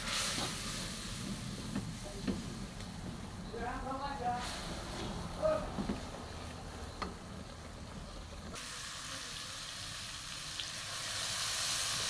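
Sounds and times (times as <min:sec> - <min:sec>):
paste sizzling in oil: 0:00.0 - 0:02.8, 0:08.6 - 0:12.0.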